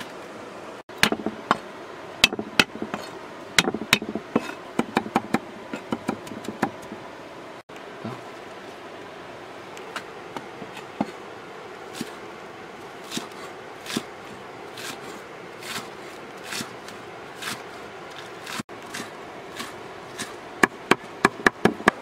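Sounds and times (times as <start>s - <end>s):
cleaver chopping on wooden block: 0.9s - 1.6s, 2.2s - 7.0s, 19.6s - 22.0s.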